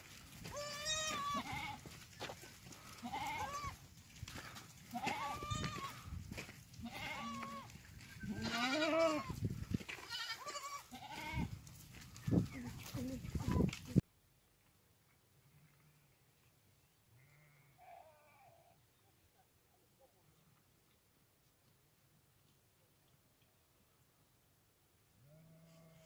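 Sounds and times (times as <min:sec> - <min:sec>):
goats bleating: 0:00.3 - 0:02.0, 0:02.7 - 0:06.1, 0:06.8 - 0:11.6.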